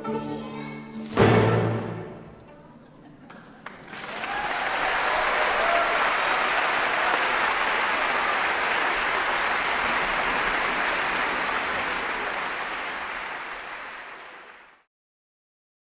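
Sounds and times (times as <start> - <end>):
audience applauding: 3.2 - 14.9.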